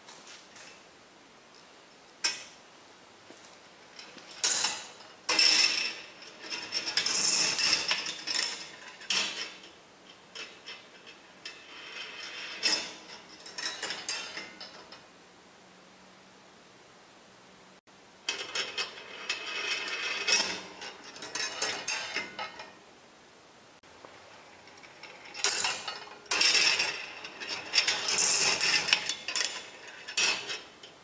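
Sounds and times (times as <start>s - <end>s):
ball rattling on wire tracks: 3.8s - 15.1s, 18.2s - 22.8s, 24.2s - 31.0s.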